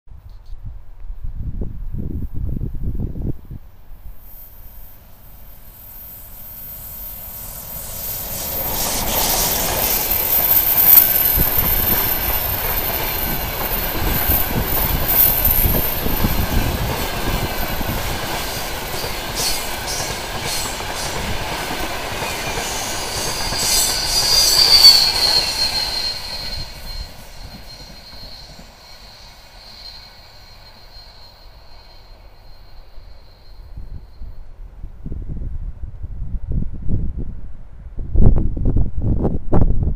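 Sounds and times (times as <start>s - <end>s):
high steady ringing tone: 4.0s - 21.3s, 22.2s - 34.7s
train wheels clattering on rails: 7.6s - 33.6s.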